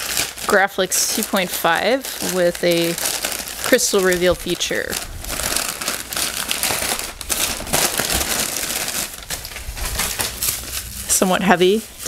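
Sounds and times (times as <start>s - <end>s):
paper crinkling and rustling: 0.0s - 12.0s.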